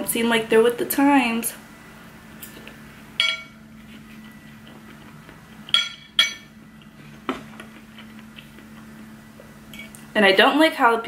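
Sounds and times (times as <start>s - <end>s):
cutlery striking ceramic plate: 3.2s - 3.6s, 5.7s - 6.5s.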